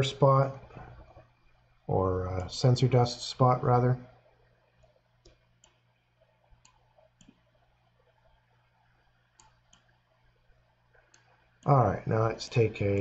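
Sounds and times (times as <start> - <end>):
faint low hum: 0.0 - 13.0
computer mouse clicks: 4.7 - 8.5, 9.3 - 10.0.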